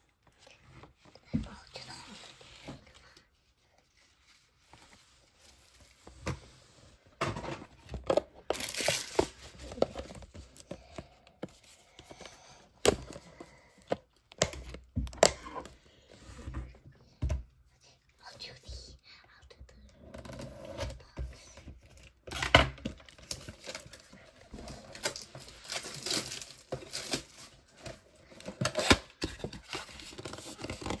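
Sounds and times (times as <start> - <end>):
packaging tearing and crinkling: 8.5 - 9.6, 24.7 - 27.5.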